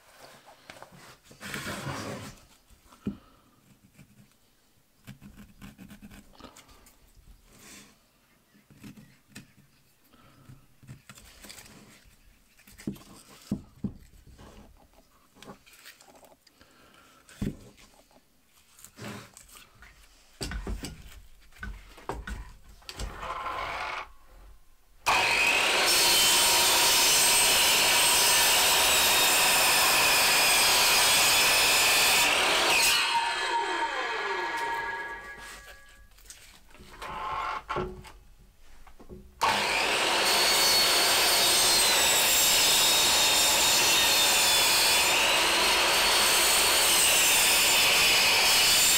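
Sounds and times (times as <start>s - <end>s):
mitre saw cutting log: 25.1s - 35.8s, 39.4s - 48.9s.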